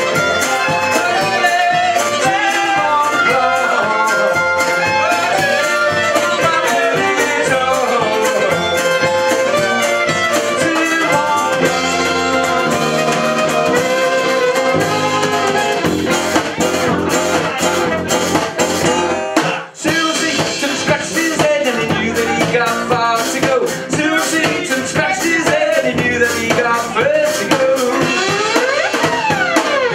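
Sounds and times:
fiddle: 0.0 - 18.4
drum kit: 0.0 - 29.9
strummed banjo and guitars: 0.0 - 29.9.

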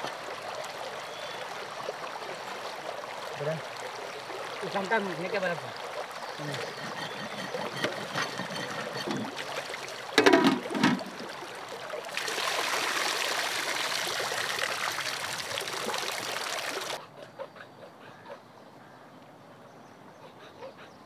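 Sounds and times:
river water splashing: 0.0 - 17.0
water pouring into metal bowl: 6.4 - 11.4.

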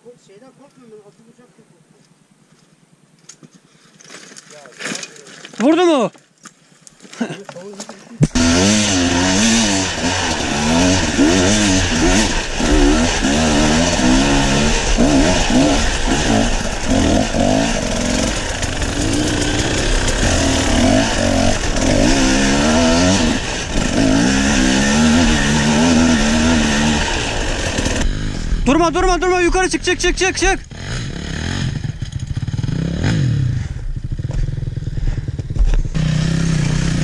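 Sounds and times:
dirt bike engine revving: 8.3 - 37.0.

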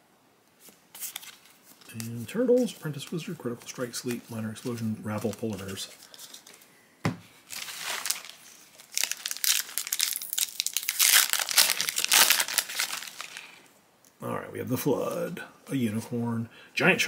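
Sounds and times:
foil wrapper crinkling: 0.6 - 6.6, 7.5 - 13.6.

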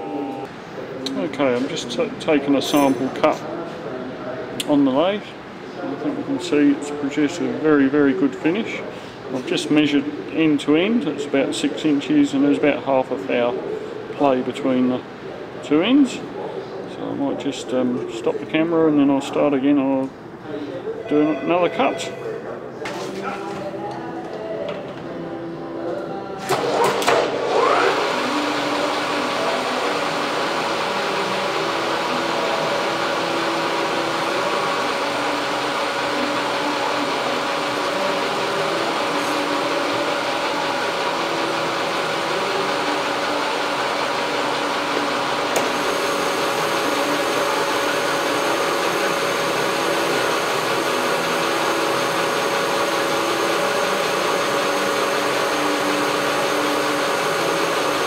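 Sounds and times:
lathe humming and whining: 26.5 - 58.0.

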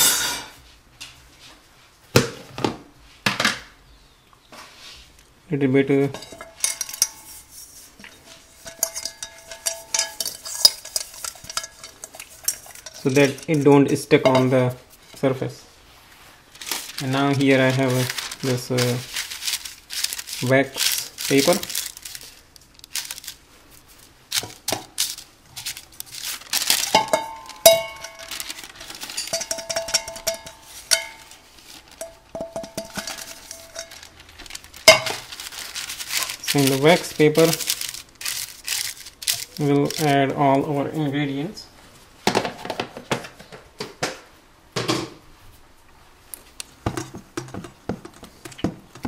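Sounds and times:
wax paper crinkling: 16.1 - 40.6.

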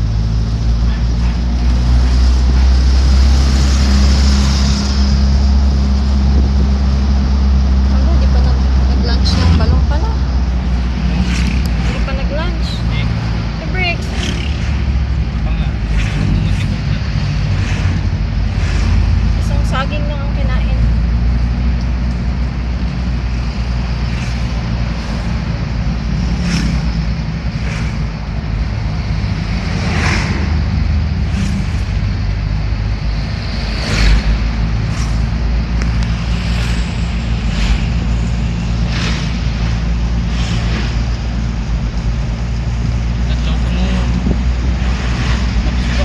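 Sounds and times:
passing traffic whooshes: 0.0 - 46.0
vehicle engine and road rumble: 0.0 - 46.0.

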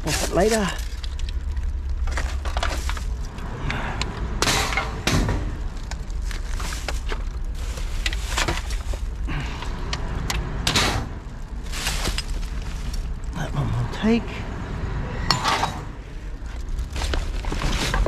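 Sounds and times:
plastic bags rustling: 0.0 - 3.5, 5.5 - 10.2, 11.1 - 13.4, 16.1 - 18.0.

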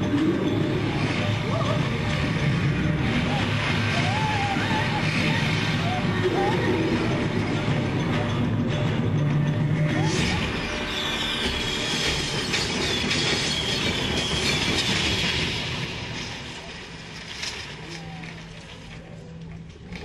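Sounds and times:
high whistles: 10.0 - 16.0
fireworks crackling sparks: 10.2 - 19.2.

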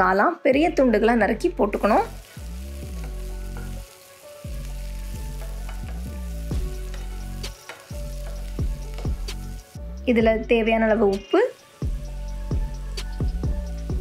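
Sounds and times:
vegetables sizzling in oil: 1.4 - 14.0
spatula knocking and scraping pan: 3.0 - 3.8, 5.3 - 9.3.

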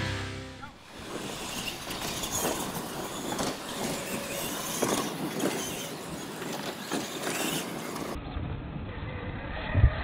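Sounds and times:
tyres churning dirt: 0.0 - 8.2
toy truck motors running: 1.0 - 8.2.

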